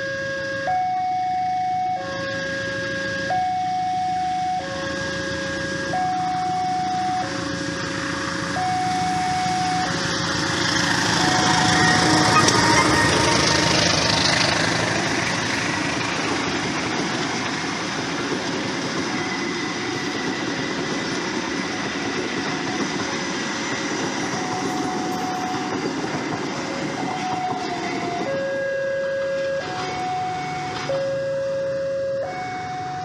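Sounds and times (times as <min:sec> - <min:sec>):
level crossing two-tone alarm: 0:00.0 - 0:02.3, 0:03.3 - 0:05.0, 0:05.8 - 0:07.4, 0:08.6 - 0:10.0, 0:11.0 - 0:14.0, 0:24.3 - 0:25.8, 0:27.0 - 0:33.0
train wheels rumbling on track: 0:06.8 - 0:31.7.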